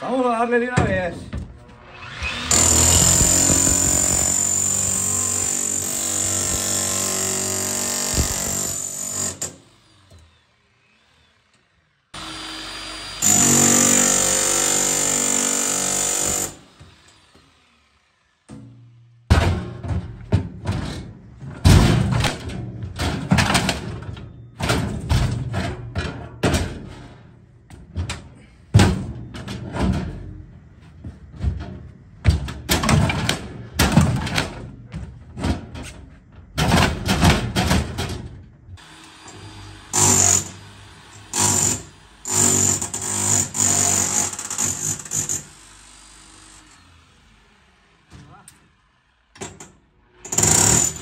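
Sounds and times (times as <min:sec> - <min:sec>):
demolition hammer bursts: 0:02.1 - 0:10.2, 0:12.2 - 0:17.0, 0:38.8 - 0:46.7, 0:49.4 - 0:51.0
metal knocks and bangs: 0:18.5 - 0:38.5.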